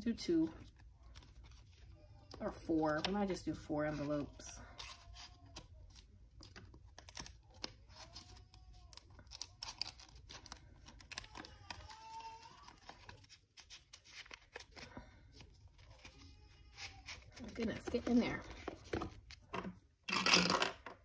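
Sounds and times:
paper bills rustling: 3.9 - 19.5.

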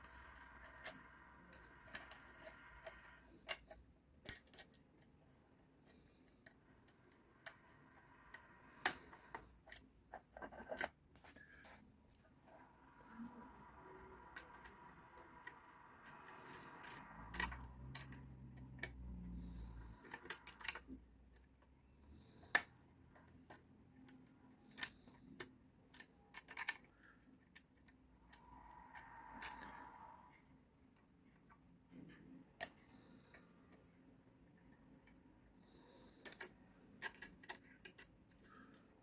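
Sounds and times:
lock picks clicking and scraping: 0.1 - 5.2, 13.0 - 21.7, 22.3 - 29.8, 36.0 - 39.0.

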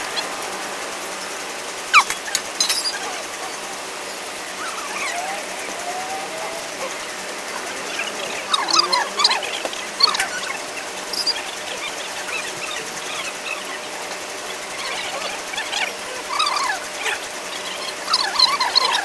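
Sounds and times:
short high chirps and squeaks: 1.9 - 3.0.

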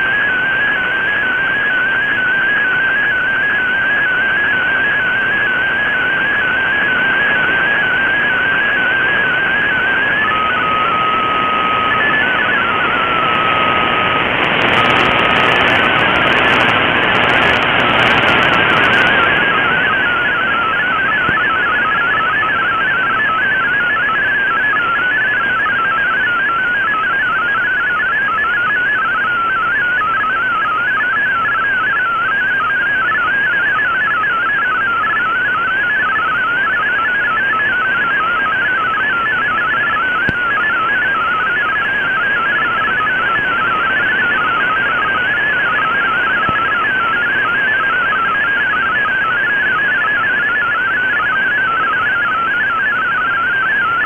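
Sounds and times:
radio band hiss: 9.0 - 21.9.

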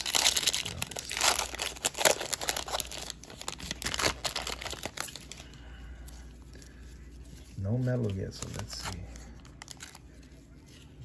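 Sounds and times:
foil wrapper tearing and crinkling: 0.0 - 5.6, 7.8 - 10.2.

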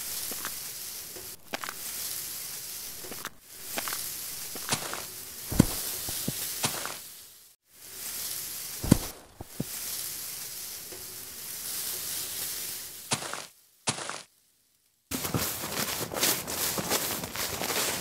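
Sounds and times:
quick running footsteps: 3.1 - 7.0, 15.1 - 18.0.

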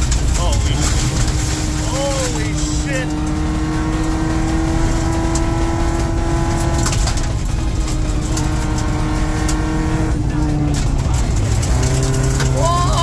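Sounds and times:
car engine pulling at steady revs: 0.0 - 13.0
stones ticking against car underside: 0.0 - 13.0
tyres rumbling on gravel: 0.0 - 13.0.

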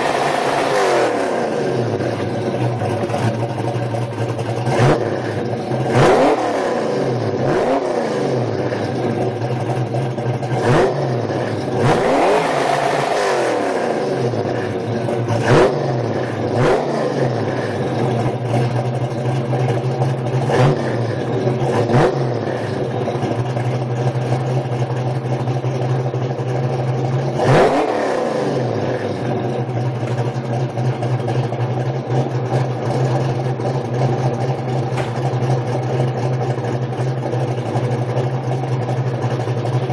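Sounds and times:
car engine revving and idling: 0.0 - 39.9.

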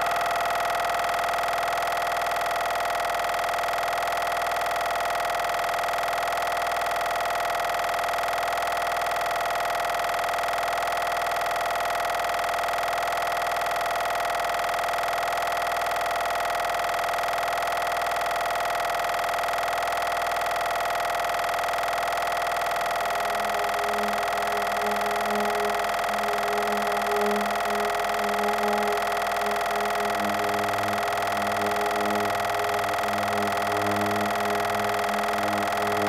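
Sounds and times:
electronic noise drone: 0.0 - 36.0
held mid-pitched tone: 22.8 - 36.0.

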